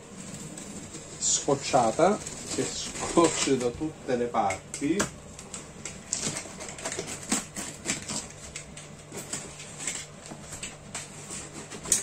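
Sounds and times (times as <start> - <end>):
knife slicing packing tape: 6.1 - 8.7.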